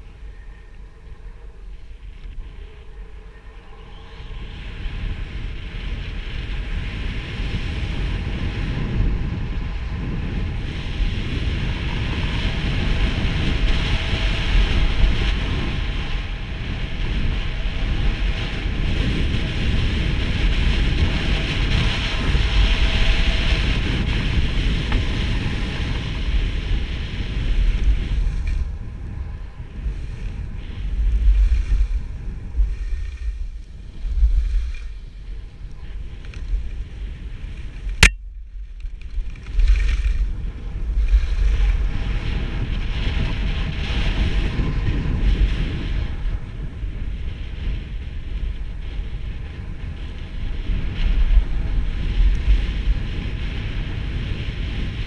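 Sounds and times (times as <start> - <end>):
wind rumbling on microphone: 0.0 - 55.0
skis hissing over snow: 29.8 - 35.2.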